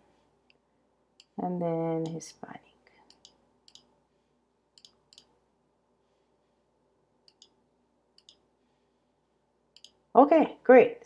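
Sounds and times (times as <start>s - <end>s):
computer mouse clicks: 3.0s - 3.9s, 4.8s - 5.4s, 7.3s - 7.6s, 8.2s - 8.4s, 9.7s - 10.0s.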